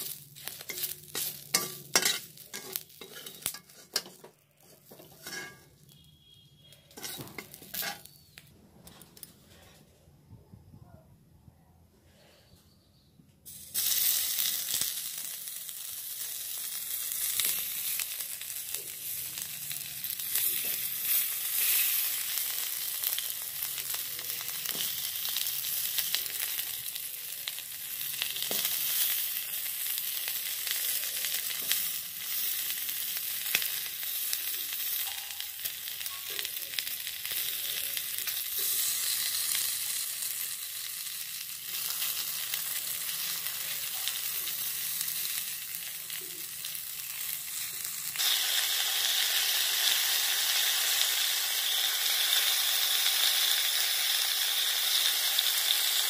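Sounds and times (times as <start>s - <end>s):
food sizzling in hot oil: 0.0s - 8.5s, 13.5s - 56.0s.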